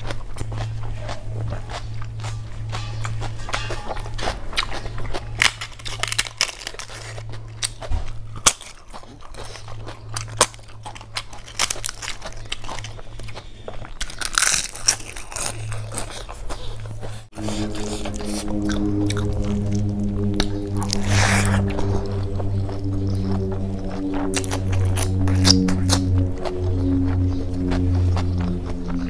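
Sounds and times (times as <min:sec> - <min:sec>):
background music: 0:00.0 - 0:07.7, 0:17.3 - 0:29.0
chewing and crunching food: 0:00.0 - 0:29.0
steady low hum: 0:00.0 - 0:29.0.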